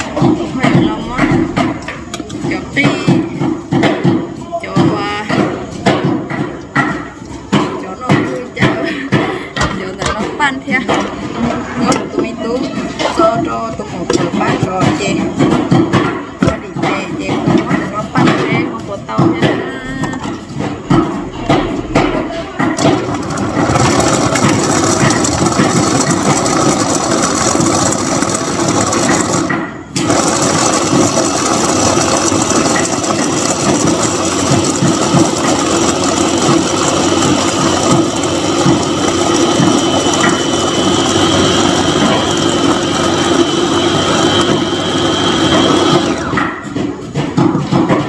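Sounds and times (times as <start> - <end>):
electric blender running: 22.8 - 46.4.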